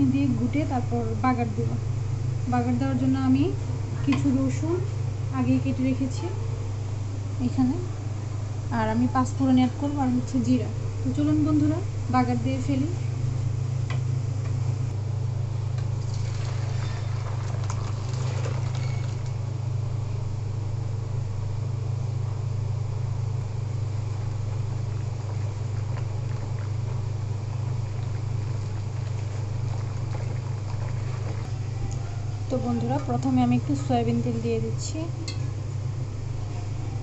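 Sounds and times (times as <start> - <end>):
steady low hum: 0.0 - 37.0
masher scraping and sloshing in pot: 16.0 - 19.4, 24.5 - 33.9.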